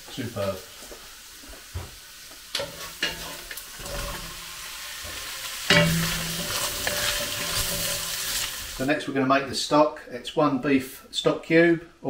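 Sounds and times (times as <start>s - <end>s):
vegetables sizzling in a pan: 0.0s - 9.0s
wooden spoon stirring: 5.1s - 8.8s.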